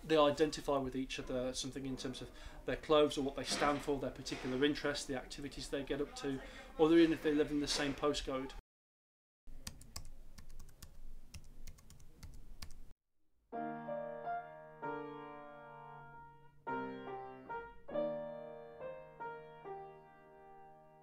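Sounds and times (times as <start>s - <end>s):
computer keyboard typing: 9.6s - 12.8s
piano music with held chords: 13.6s - 21.0s.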